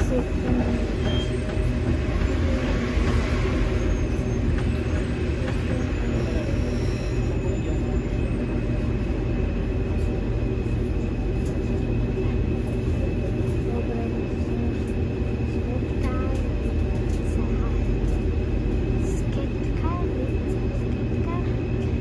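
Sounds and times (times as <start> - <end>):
metro train rumble: 0.0 - 22.0.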